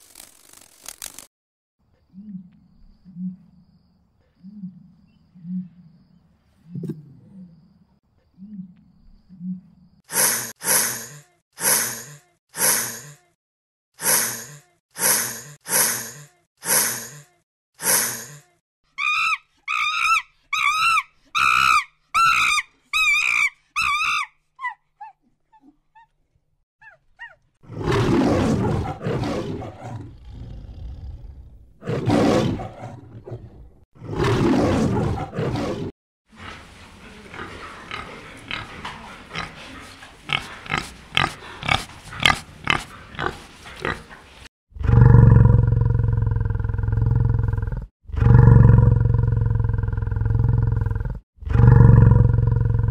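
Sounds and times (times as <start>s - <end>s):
lion roaring: 27.6s - 35.9s, 44.8s - 52.9s
wild boar grunting: 36.3s - 52.9s.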